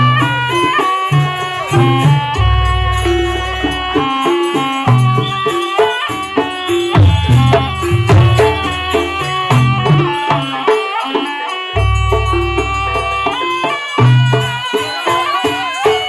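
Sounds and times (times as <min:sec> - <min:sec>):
rattling percussion: 0:00.0 - 0:16.0
struck metallic melody: 0:00.0 - 0:16.0
low drum beats: 0:01.2 - 0:05.4, 0:06.5 - 0:10.5, 0:11.8 - 0:14.3.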